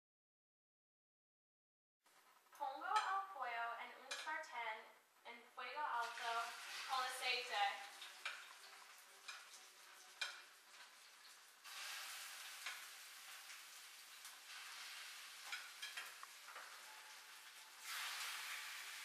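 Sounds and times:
food sizzling in a frying pan: 5.8s - 19.0s
utensil clicking against pan: 7.9s - 11.4s, 12.6s - 13.6s, 15.4s - 16.8s.

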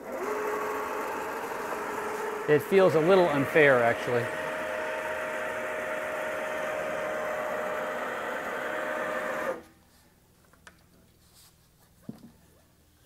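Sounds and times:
electric motor whining: 0.0s - 9.6s.

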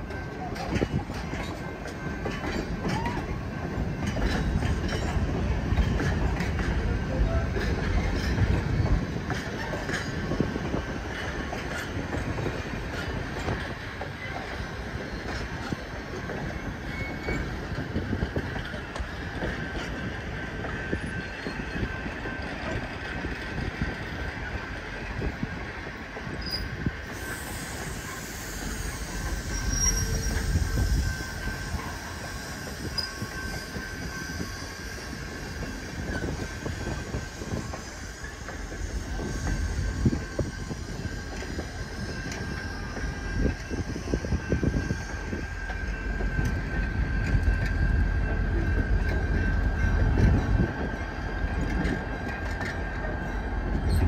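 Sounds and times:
rail joints clicking: 0.0s - 54.0s
train rumble: 0.0s - 54.0s
train wheels squealing: 0.0s - 54.0s.

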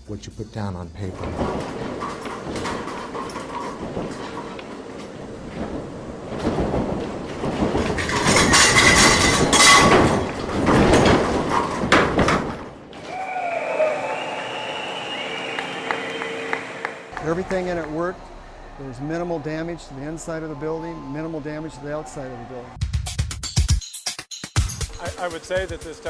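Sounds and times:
building rumbling and rattling: 0.6s - 13.2s.

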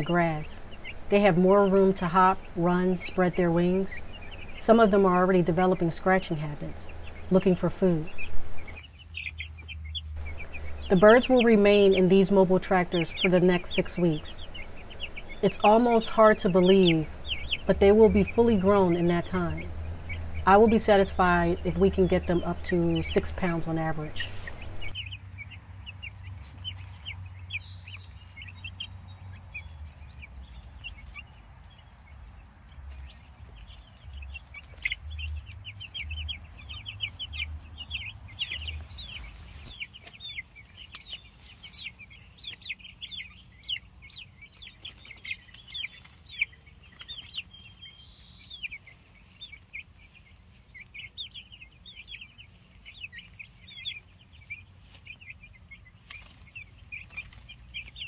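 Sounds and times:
chicks peeping: 0.0s - 58.0s
low rumble: 16.5s - 24.9s.

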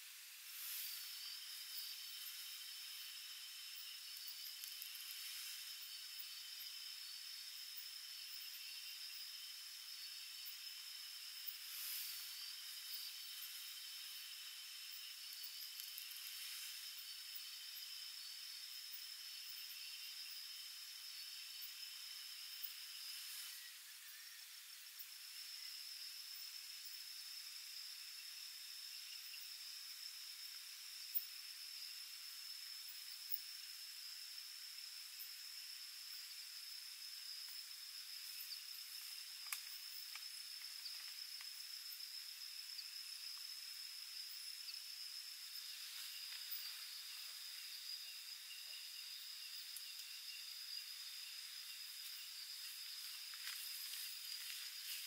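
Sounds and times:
night insects chirring: 0.0s - 55.0s
faint ticks and clicks: 3.7s - 6.8s, 14.9s - 17.5s, 37.4s - 42.0s, 49.6s - 50.4s, 51.9s - 55.0s.

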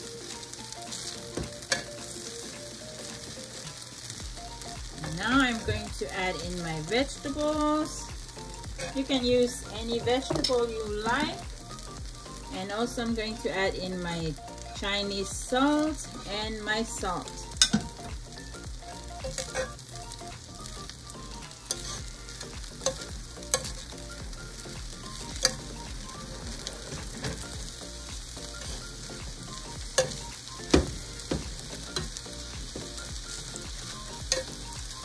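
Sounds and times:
sizzling pan: 0.0s - 35.0s
metal spoon scraping pan: 19.2s - 19.8s, 21.7s - 22.0s.

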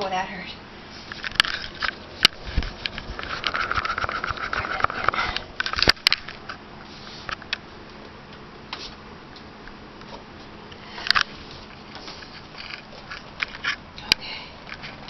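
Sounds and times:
faint steady hum: 0.0s - 15.0s
fabric rustling on microphone: 0.8s - 7.4s.

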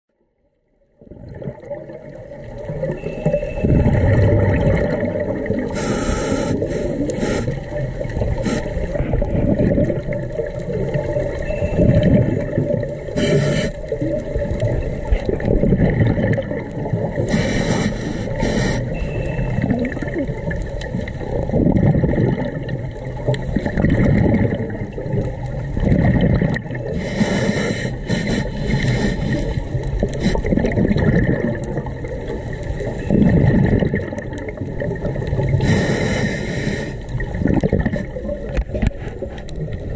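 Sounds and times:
bubbling regulator exhales: 1.0s - 39.9s
hissing regulator inhale: 5.7s - 9.0s, 13.1s - 13.9s, 17.2s - 19.2s, 26.9s - 30.6s, 35.6s - 37.1s.

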